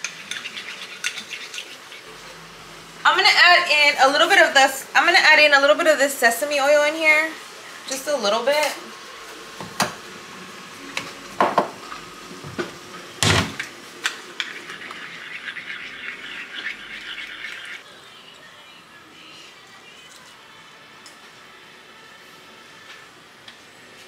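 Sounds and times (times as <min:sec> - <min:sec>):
spoon stirring in ceramic bowl: 0:00.0 - 0:02.1, 0:14.4 - 0:17.8.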